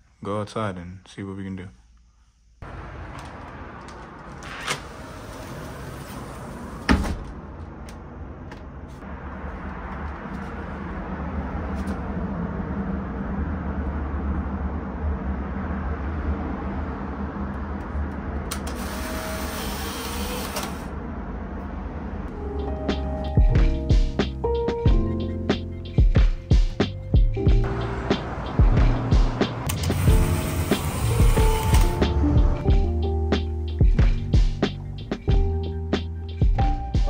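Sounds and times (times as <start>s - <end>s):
camera motor whir: 18.7s - 20.8s.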